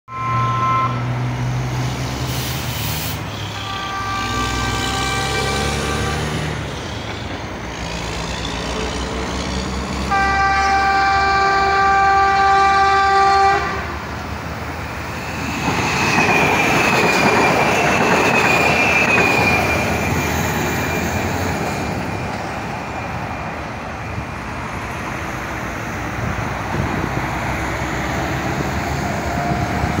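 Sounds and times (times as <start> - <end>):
train horn blasts: 0.1 - 1.2, 3.3 - 6.7, 10.0 - 14.1
train wheels rumbling on rails: 1.0 - 30.0
high steady wheel squeal: 1.9 - 12.8, 14.8 - 26.6.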